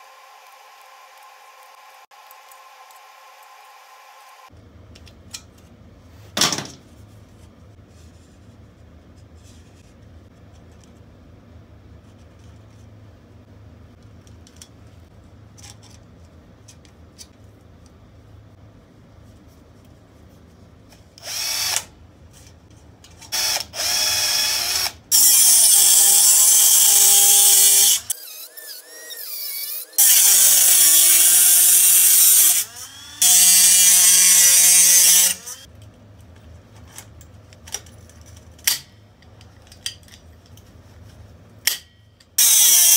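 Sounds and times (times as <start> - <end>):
rotary tool cutting sheet metal: 23.4 - 35.7, 42.4 - 42.9.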